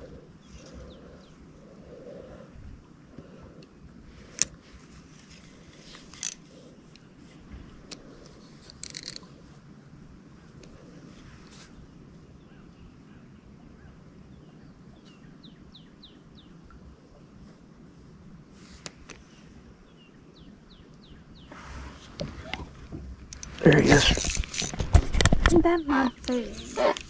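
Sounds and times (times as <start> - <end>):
fishing reel clicks and knocks: 8.7 - 9.3.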